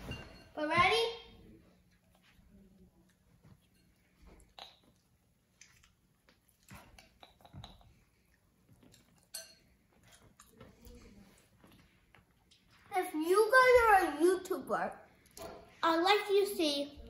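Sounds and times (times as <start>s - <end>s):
quiet chewing: 1.6s - 12.9s.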